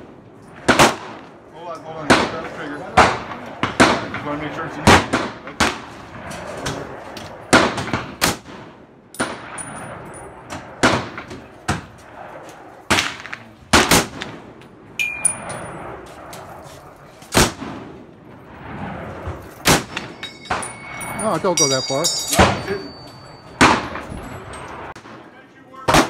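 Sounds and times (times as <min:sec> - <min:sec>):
gunshots: 0:00.0 - 0:01.3, 0:02.0 - 0:09.7, 0:10.5 - 0:12.3, 0:12.9 - 0:14.6, 0:17.2 - 0:20.6, 0:23.6 - 0:26.0.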